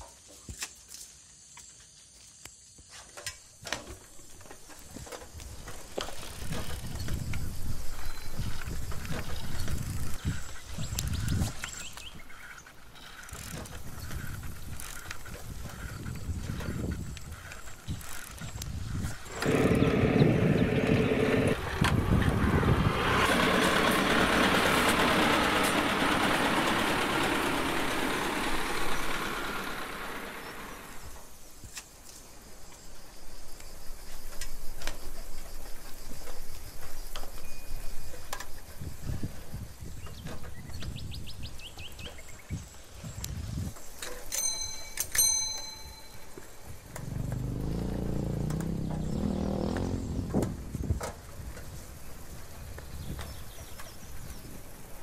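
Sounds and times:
machine engine rumbling: 0:12.9 - 0:31.2, 0:46.8 - 0:51.9
bicycle bell ringing: 0:44.3 - 0:46.5.

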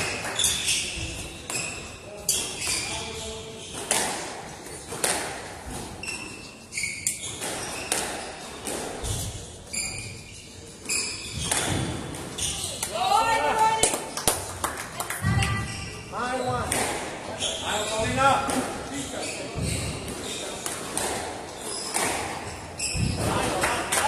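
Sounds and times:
shoes squeaking on wooden floor: 0:00.0 - 0:13.8, 0:15.2 - 0:23.7
squash ball cracking off rackets: 0:03.7 - 0:05.8, 0:07.3 - 0:09.2, 0:11.3 - 0:12.3, 0:16.7 - 0:17.2, 0:19.6 - 0:24.0.

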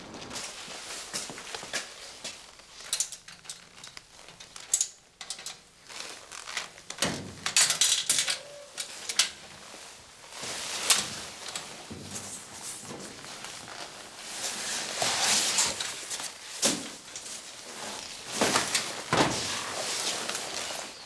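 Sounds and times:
plastic raincoat rustling: 0:00.0 - 0:07.4, 0:08.8 - 0:21.0
rummaging inside locker: 0:10.5 - 0:21.0.

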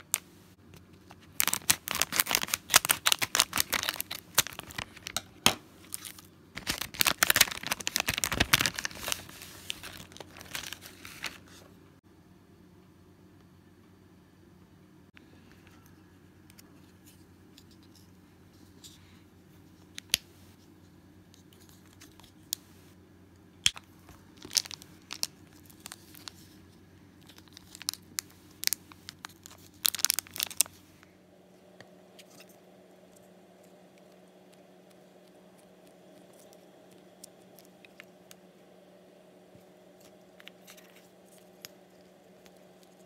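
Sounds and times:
plastic crackling: 0:00.0 - 0:11.6, 0:23.6 - 0:31.1, 0:32.2 - 0:38.5
low steady hum: 0:00.0 - 0:43.0.

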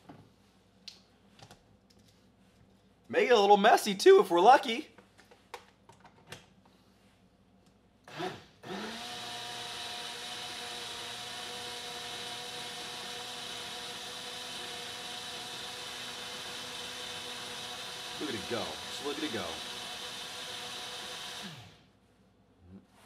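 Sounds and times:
blender motor humming: 0:08.1 - 0:21.9.

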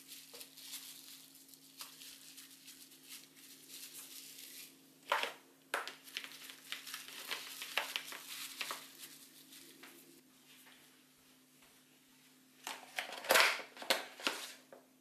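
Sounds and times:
cling film crinkling: 0:00.0 - 0:10.2.

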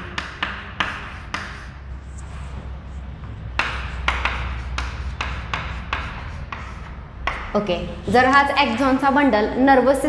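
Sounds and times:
chalk scratching on chalkboard: 0:00.0 - 0:07.4
low steady hum: 0:00.0 - 0:10.0.

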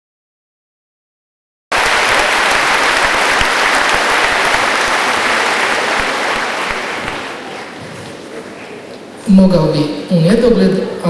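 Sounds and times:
audience applauding: 0:01.7 - 0:07.8.

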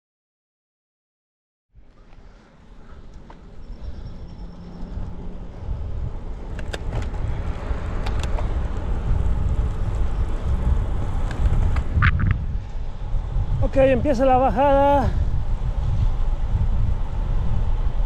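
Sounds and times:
wind over microphone: 0:01.8 - 0:18.0
tyres rolling on wet asphalt: 0:04.8 - 0:12.2.

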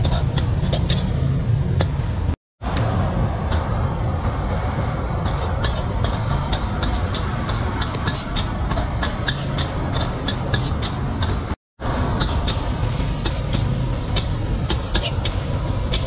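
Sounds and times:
low rumble: 0:00.0 - 0:16.0.

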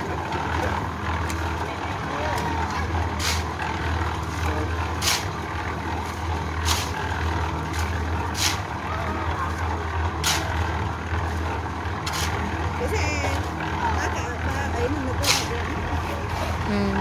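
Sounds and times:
concrete mixer humming: 0:00.0 - 0:17.0
shovels scraping wet concrete: 0:02.4 - 0:08.7, 0:10.2 - 0:10.6, 0:12.0 - 0:12.7, 0:15.1 - 0:16.6.

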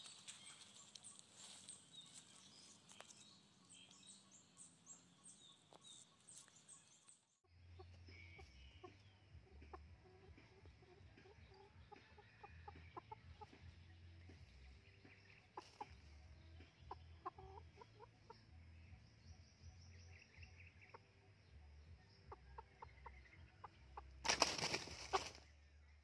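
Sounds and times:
chicken clucking softly: 0:07.7 - 0:18.6, 0:22.2 - 0:25.4
wings flapping and thrashing: 0:24.2 - 0:25.4.

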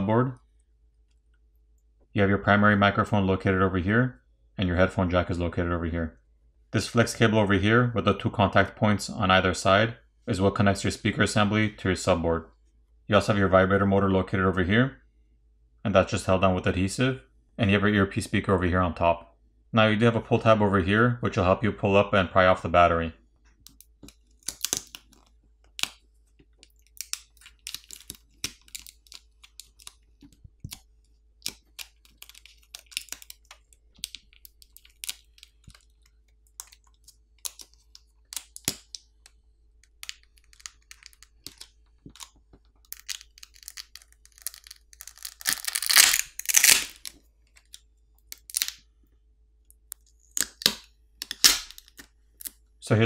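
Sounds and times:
adhesive crackling and tearing: 0:23.6 - 0:48.8, 0:49.9 - 0:52.6.

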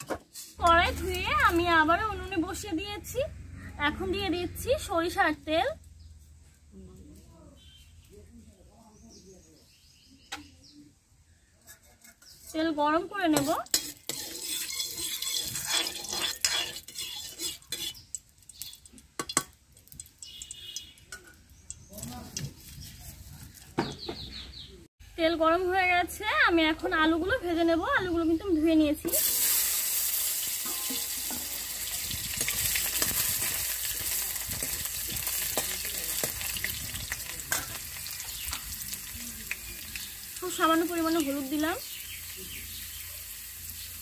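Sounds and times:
potatoes sizzling in hot oil: 0:00.0 - 0:03.1, 0:12.5 - 0:22.5, 0:29.0 - 0:44.0
metal utensil scraping cookware: 0:11.6 - 0:19.5, 0:30.5 - 0:36.8, 0:37.4 - 0:38.8.

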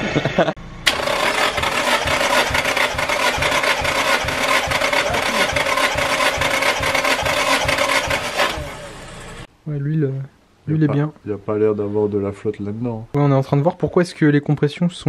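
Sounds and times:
engine cranking on starter motor: 0:00.8 - 0:09.5.

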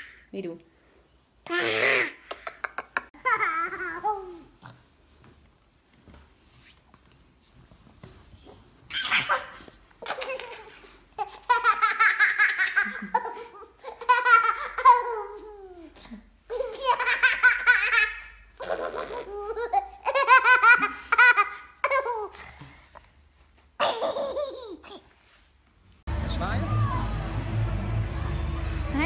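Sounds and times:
little girl laughing: 0:01.5 - 0:04.5, 0:08.9 - 0:22.4, 0:23.8 - 0:25.1.

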